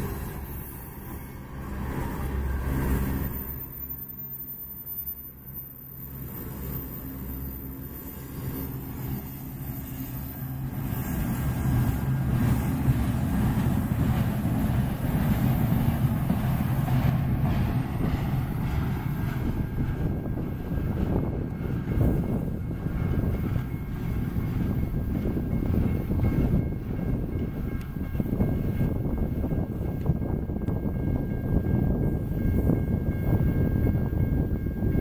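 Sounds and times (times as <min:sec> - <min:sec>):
freight train wheels rumbling on rails: 0:00.0 - 0:35.0.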